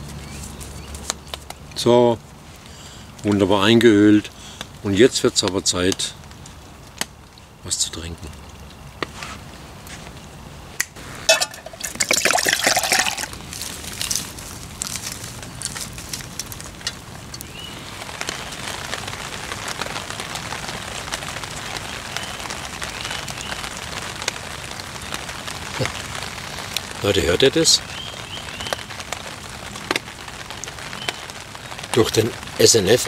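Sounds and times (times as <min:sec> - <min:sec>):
steady rain: 0:00.0 - 0:33.0
liquid pouring: 0:11.3 - 0:14.2.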